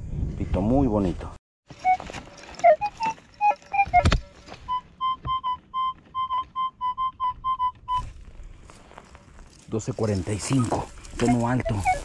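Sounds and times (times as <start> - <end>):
metal detector beeping: 1.8 - 8.1, 10.4 - 12.0.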